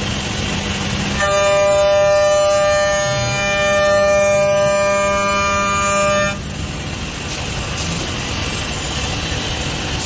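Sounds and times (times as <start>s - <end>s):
rushing machine noise: 0.0s - 10.0s
spindle high whine: 1.0s - 9.0s.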